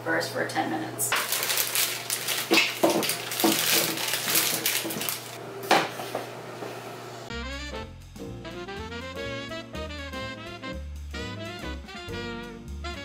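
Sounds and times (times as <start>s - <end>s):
potatoes clattering into metal bowl: 1.1s - 5.4s
music: 7.3s - 13.0s.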